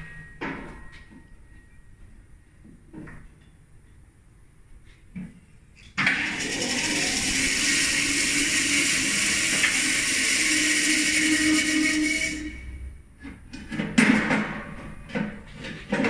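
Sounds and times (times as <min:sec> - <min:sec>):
electric motor whirring: 0:06.4 - 0:11.9.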